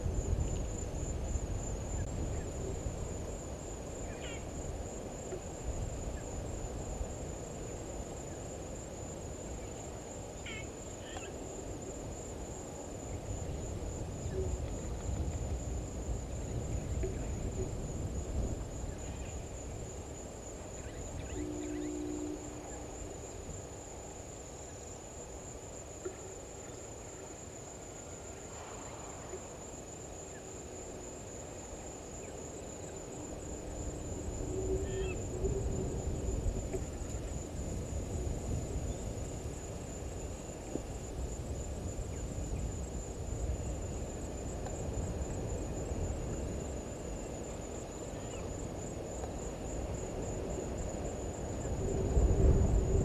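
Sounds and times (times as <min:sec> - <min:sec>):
insect trilling: 0:04.0 - 0:04.6, 0:10.4 - 0:11.4, 0:18.7 - 0:24.7, 0:32.2 - 0:37.4
bird chirps: 0:20.8 - 0:22.9.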